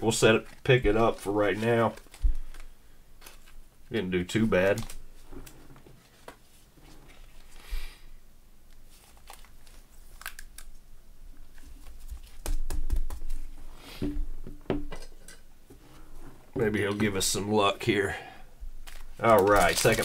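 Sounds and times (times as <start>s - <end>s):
plastic sleeve crinkling: 0.0s - 3.6s, 4.3s - 6.3s, 8.8s - 10.8s, 18.8s - 20.0s.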